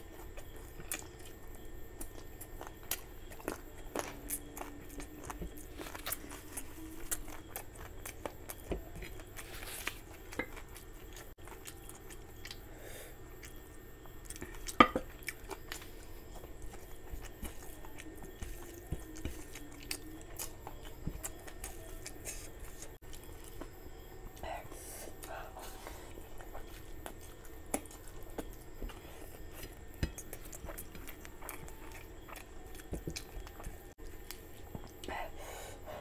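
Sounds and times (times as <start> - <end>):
chewing food: 0.0 - 36.0
rice mixed with gravy by hand: 13.5 - 36.0.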